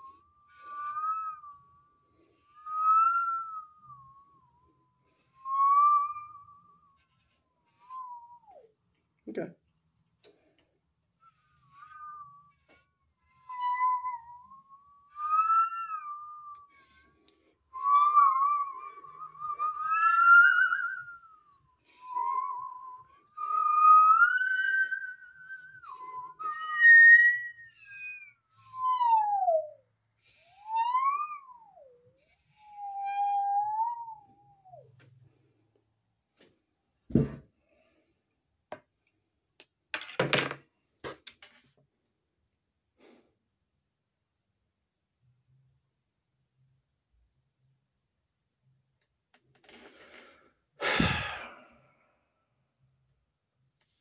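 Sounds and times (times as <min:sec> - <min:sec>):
bowed musical saw: 0:17.7 - 0:34.8
heavy thump on desk: 0:37.1 - 0:37.4.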